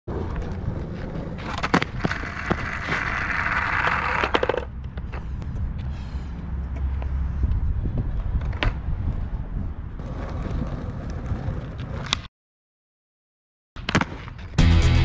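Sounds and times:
skateboard clacks: 0.1 - 5.2
skateboard wheels rolling on asphalt: 0.1 - 12.3, 13.8 - 14.6
wind rumble on microphone: 7.0 - 11.6.

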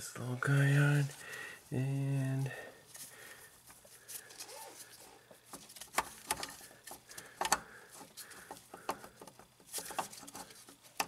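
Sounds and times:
light clicks and knocks of part: 5.3 - 11.0.

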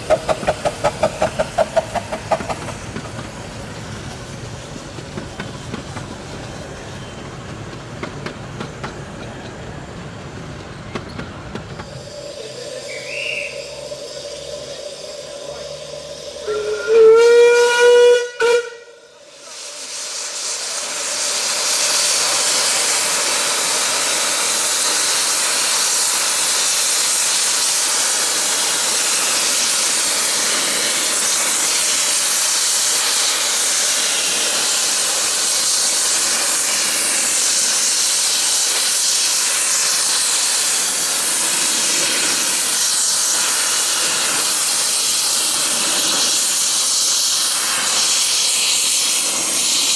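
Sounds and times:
steam hissing: 0.0 - 49.9
steam locomotive whistle: 12.8 - 14.4, 16.2 - 19.2.

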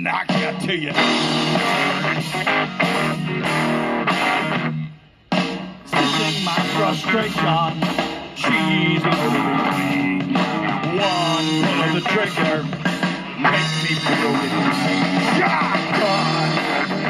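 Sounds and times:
song from small speakers: 0.0 - 17.0.

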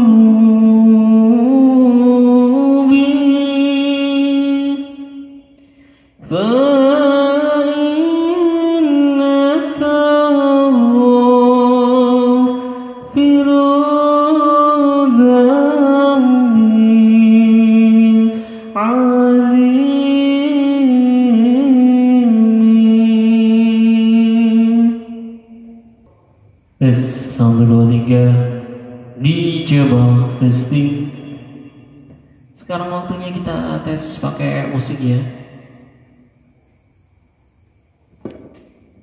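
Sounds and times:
man singing through loudspeakers: 0.0 - 5.1, 6.2 - 25.2, 26.8 - 31.6, 32.6 - 35.6.

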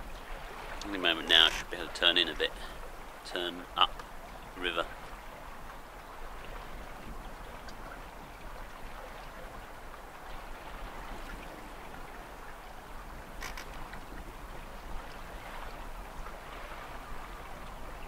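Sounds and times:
water rushing along boat hull: 0.0 - 18.0.

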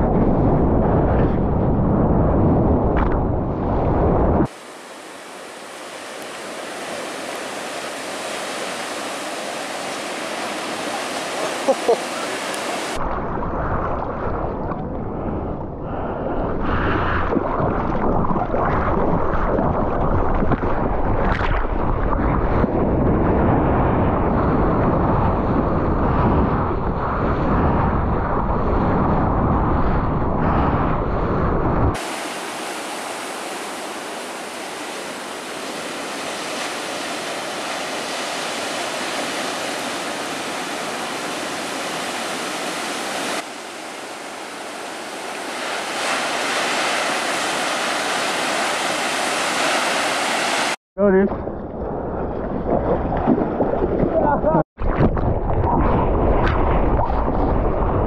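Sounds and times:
muffled water rushing and splashing: 0.0 - 58.0
surf breaking: 4.1 - 14.8, 31.9 - 50.8, 52.0 - 58.0.

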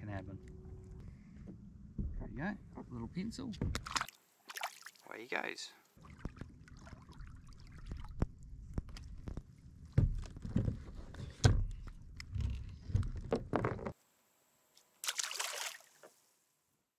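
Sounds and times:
fish splashing into water: 3.8 - 5.0, 15.0 - 16.0.

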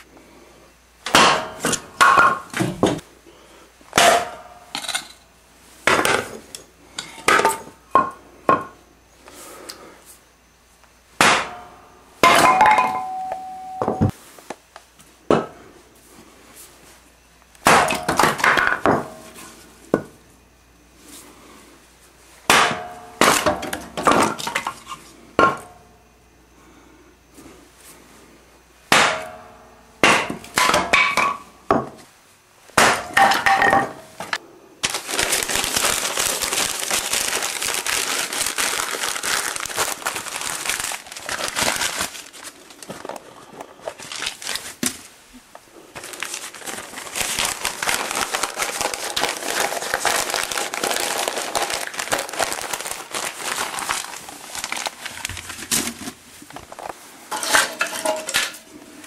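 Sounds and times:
paper being crumpled: 34.8 - 45.0, 46.0 - 56.9
kindling sticks clattering: 57.3 - 58.7.

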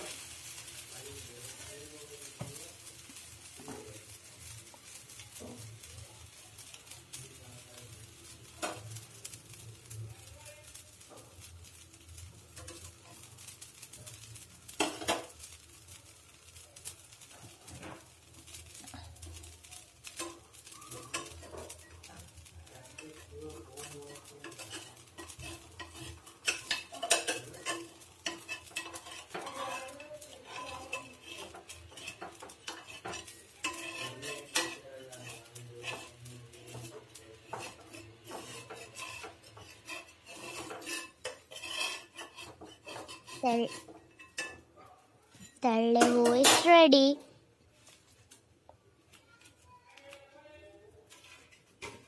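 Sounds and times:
metal utensil scraping a pan: 0.0 - 47.0, 51.0 - 52.0
faint sizzling: 0.0 - 52.0.

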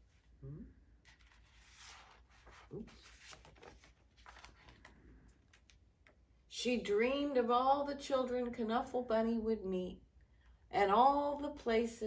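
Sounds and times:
paper pages rustling: 1.0 - 6.2.

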